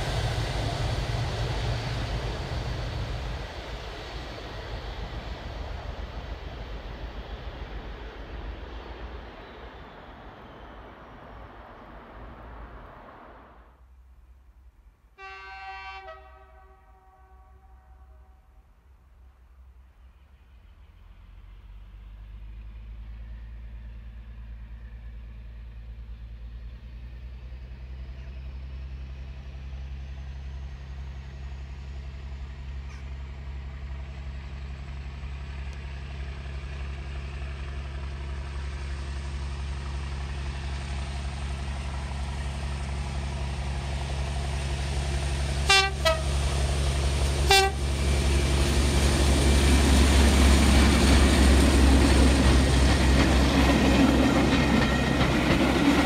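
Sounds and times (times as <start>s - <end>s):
diesel locomotive engines: 0.0s - 56.0s
locomotive horn blasts: 15.2s - 18.5s, 45.7s - 46.4s, 47.5s - 47.8s.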